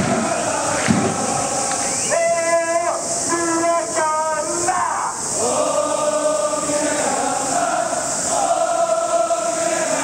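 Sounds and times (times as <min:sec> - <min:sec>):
crowd chanting in unison: 0:00.0 - 0:02.2, 0:05.1 - 0:10.0.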